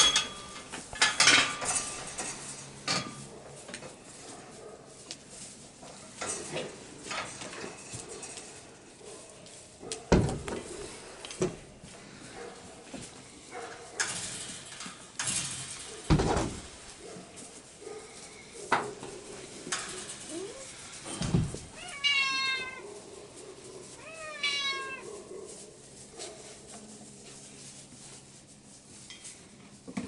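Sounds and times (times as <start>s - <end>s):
knocks and thumps: 10.1s - 10.7s, 16.0s - 16.8s, 21.1s - 21.7s
puppy whining: 20.2s - 20.8s.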